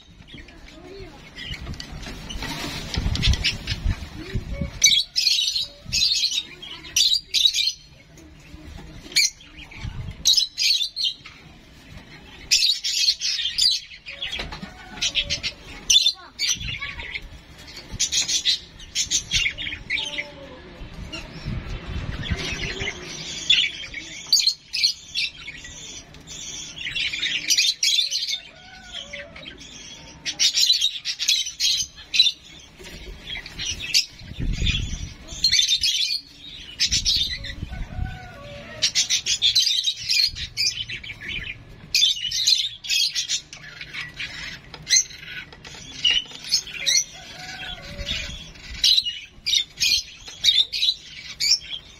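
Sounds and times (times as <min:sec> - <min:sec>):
young bird chirping: 0:21.2 - 0:51.9.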